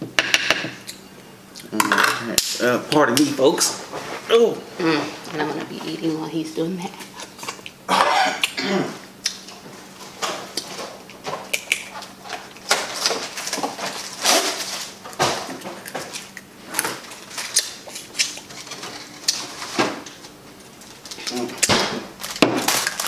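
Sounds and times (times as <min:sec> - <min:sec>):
close-up eating noises: 0:04.7 - 0:23.0
crab shells cracking: 0:10.5 - 0:19.5, 0:21.0 - 0:23.0.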